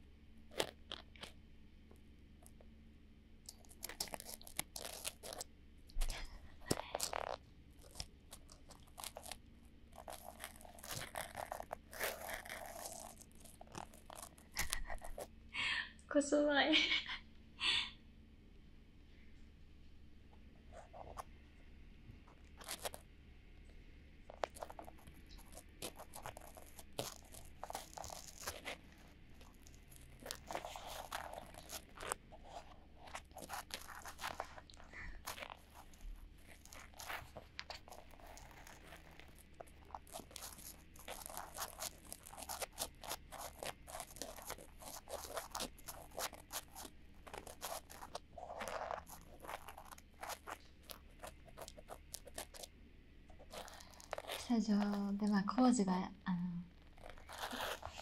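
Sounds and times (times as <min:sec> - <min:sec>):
cotton swabs scratching microphone: 0:24.3 - 0:52.7, 0:53.3 - 0:55.3, 0:56.8 - 0:58.0.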